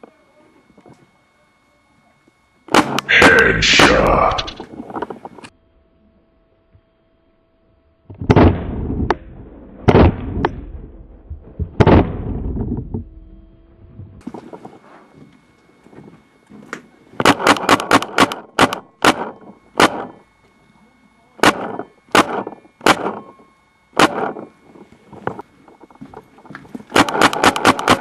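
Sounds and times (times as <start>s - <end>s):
paintball marker firing: 17.2s - 20.2s, 21.4s - 23.2s, 24.0s - 24.5s, 26.9s - 28.0s.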